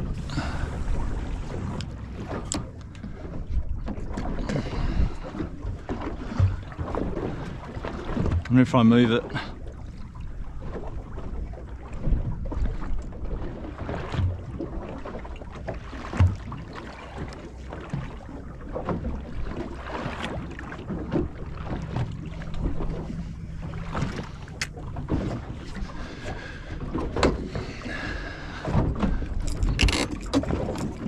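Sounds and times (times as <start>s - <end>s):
wind on microphone: 0.0s - 8.5s
water lapping against hull: 0.0s - 31.0s
knocks on boat: 16.0s - 18.2s, 26.2s - 27.8s.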